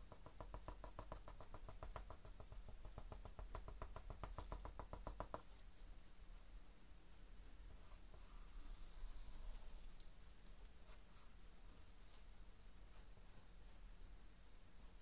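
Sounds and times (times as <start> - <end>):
pencil scratching on paper: 0.0 - 5.6, 7.7 - 10.0.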